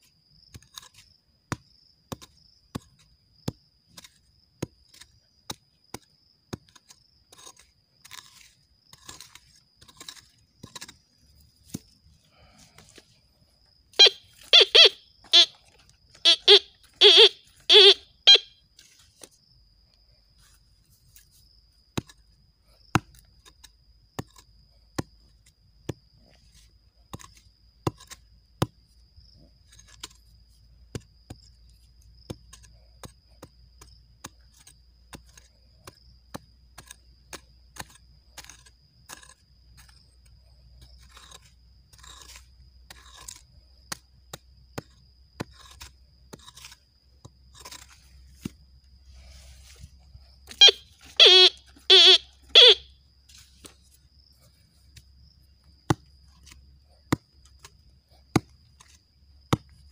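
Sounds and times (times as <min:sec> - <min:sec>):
hand hoe chopping dry soil: 0:00.0 - 0:13.1, 0:21.2 - 0:28.9, 0:29.6 - 0:48.6, 0:54.9 - 0:59.9
faint steady high tone: 0:14.0 - 0:18.7, 0:50.5 - 0:53.0.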